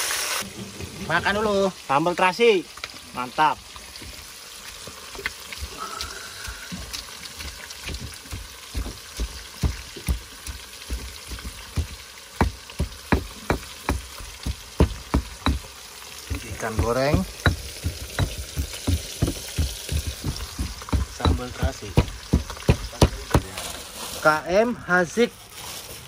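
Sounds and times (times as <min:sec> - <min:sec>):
fish sizzling in hot oil: 0:00.0 - 0:26.0
sharp clicks and knocks: 0:16.3 - 0:23.5.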